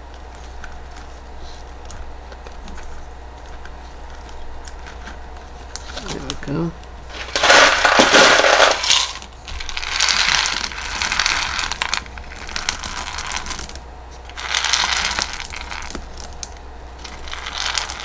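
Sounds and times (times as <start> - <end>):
clay pebbles rattling into pot: 5.8 - 18.0.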